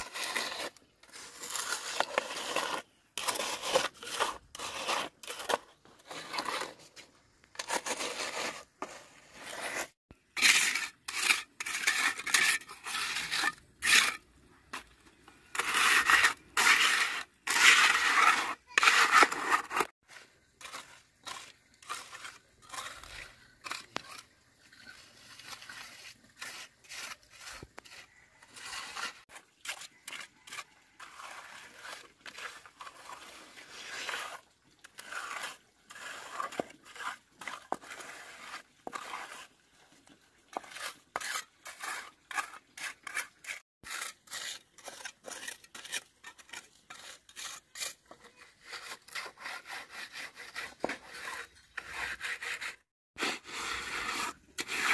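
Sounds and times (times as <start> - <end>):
scraping and rubbing strokes: 0.0 - 54.9.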